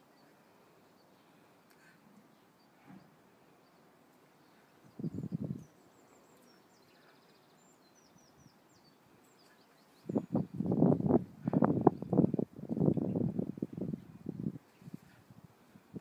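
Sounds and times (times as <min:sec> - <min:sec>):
faint high bird chirps: 0:00.0 - 0:10.6.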